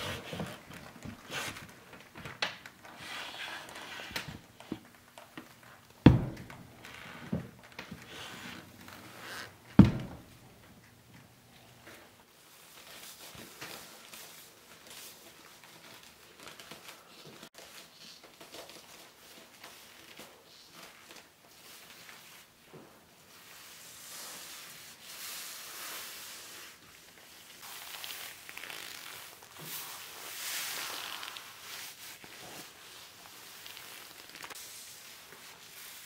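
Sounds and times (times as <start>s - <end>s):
leather gloves rustling: 27.6s - 36.0s.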